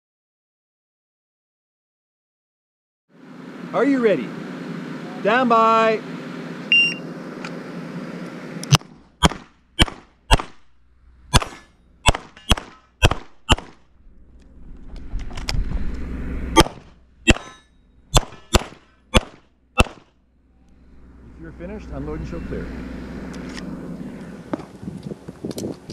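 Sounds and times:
low rumble: 0:08.8 - 0:25.7
pistol shots: 0:09.2 - 0:10.7, 0:11.3 - 0:13.8, 0:16.6 - 0:20.1.

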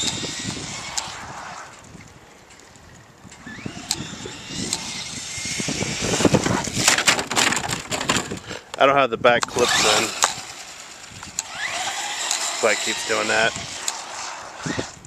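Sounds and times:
electric motor whining: 0:00.0 - 0:01.8, 0:03.4 - 0:08.2, 0:09.4 - 0:15.0
tyres rasping on asphalt: 0:00.0 - 0:01.9, 0:03.4 - 0:07.2, 0:09.5 - 0:15.0.

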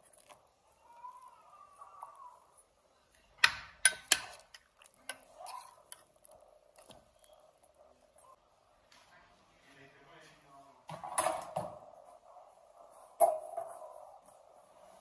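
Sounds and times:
metal spoon clinking on pot: 0:03.4 - 0:06.1.

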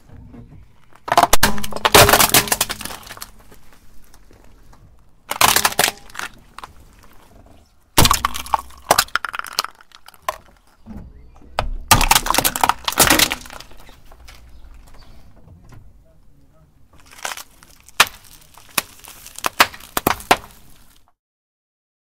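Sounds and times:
plastic cracking under tyre: 0:00.4 - 0:07.3, 0:08.0 - 0:15.2, 0:16.9 - 0:21.2
plastic packets bursting: 0:01.0 - 0:04.2, 0:05.3 - 0:06.8, 0:08.0 - 0:10.8, 0:11.8 - 0:15.0, 0:17.0 - 0:21.1.

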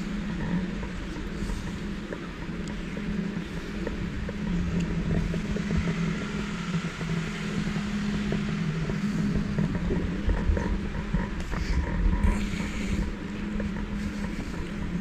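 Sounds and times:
gimbal motors humming: 0:00.0 - 0:15.0
street traffic hiss: 0:12.3 - 0:14.8.

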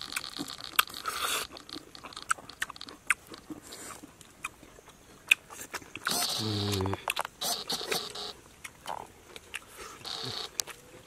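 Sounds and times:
sharp clicks and crackles: 0:00.0 - 0:03.5, 0:06.0 - 0:10.8.

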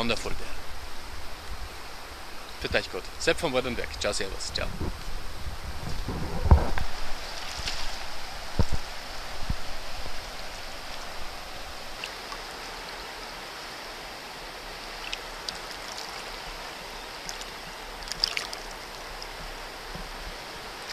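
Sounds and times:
water running over pebbles: 0:06.7 - 0:12.9, 0:14.6 - 0:20.9
fast-flowing river rushing: 0:08.0 - 0:20.9
faint splashy clicks: 0:15.0 - 0:16.1, 0:17.2 - 0:19.3.

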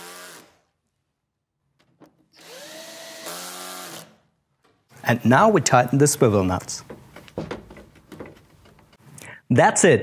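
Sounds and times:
cordless drill whining: 0:02.4 - 0:04.2.

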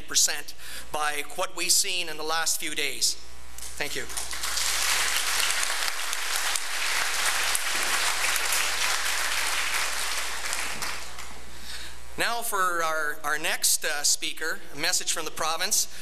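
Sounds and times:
audience applauding: 0:04.1 - 0:11.4.

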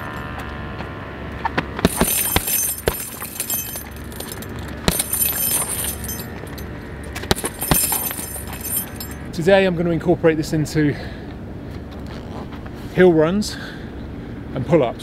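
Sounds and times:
gloves punching heavy bag: 0:01.8 - 0:06.2, 0:07.2 - 0:09.1
chain jangling: 0:01.9 - 0:09.2.

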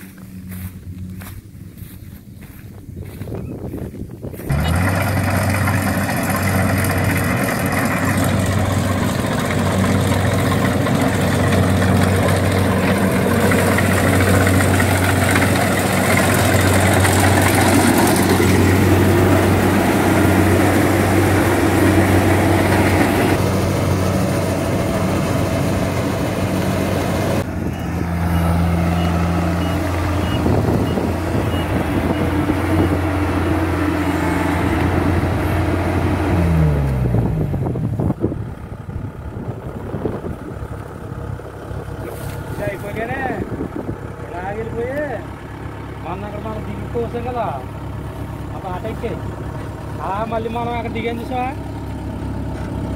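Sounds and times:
combine harvester engine hum: 0:00.0 - 0:52.9
cutting and threshing machinery: 0:04.3 - 0:37.4.

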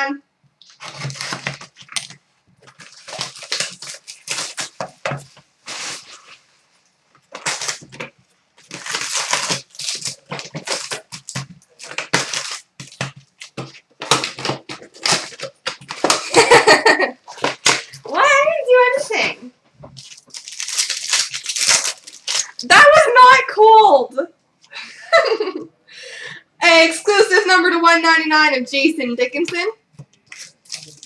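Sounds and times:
card packs rustling: 0:00.6 - 0:06.4, 0:07.1 - 0:18.5, 0:19.8 - 0:23.0, 0:30.0 - 0:31.0
cardboard crinkling and tearing: 0:00.6 - 0:06.5, 0:07.2 - 0:18.2, 0:19.9 - 0:22.7, 0:30.2 - 0:31.0.

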